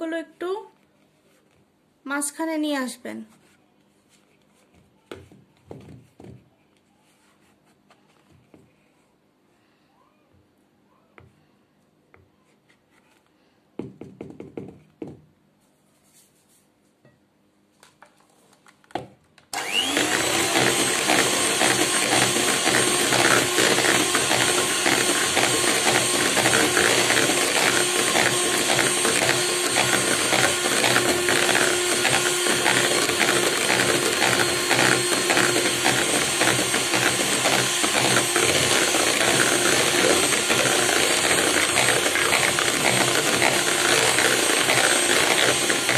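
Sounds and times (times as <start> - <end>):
electric hand mixer whipping cream: 19.6 - 45.9
spatula scraping a bowl: 20.0 - 45.9.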